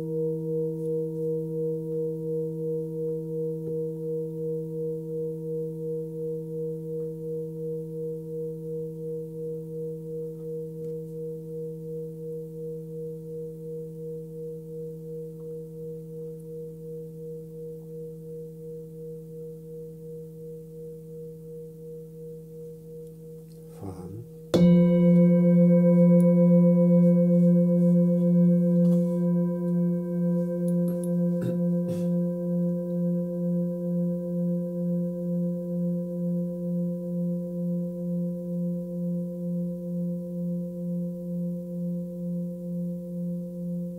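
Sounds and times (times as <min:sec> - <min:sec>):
singing bowl ringing: 0:00.0 - 0:43.9
higher-pitched singing bowl struck: 0:23.7 - 0:43.9.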